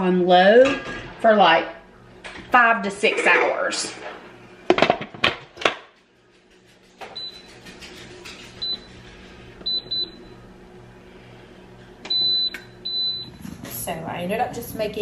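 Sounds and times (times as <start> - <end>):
control panel beeps: 9.6 - 10.3, 12.1 - 13.4.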